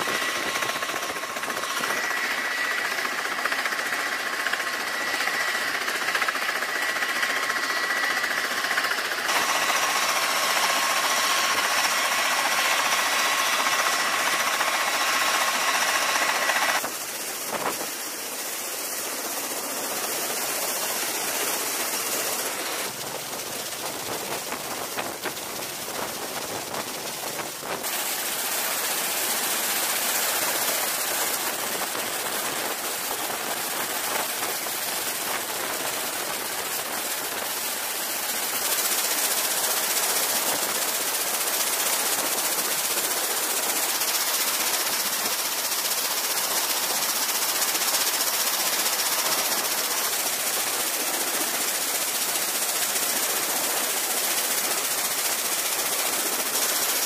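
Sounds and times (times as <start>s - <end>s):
aircraft engines rushing: 0.0s - 29.1s
high turbine whine: 0.0s - 57.0s.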